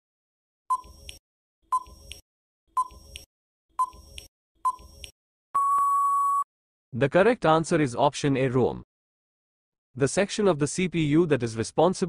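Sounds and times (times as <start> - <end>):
long steady beep: 5.6 - 6.5.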